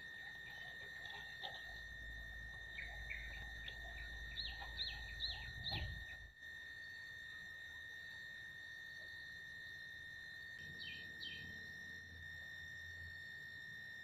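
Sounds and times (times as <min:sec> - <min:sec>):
birds chirping: 0:00.1 - 0:06.3, 0:10.6 - 0:11.6.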